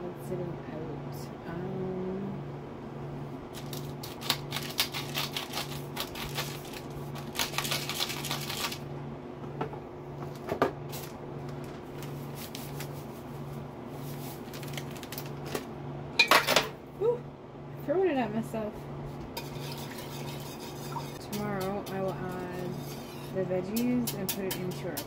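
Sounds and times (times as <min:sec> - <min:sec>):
pepper mill grinding: 0:03.5 - 0:08.8.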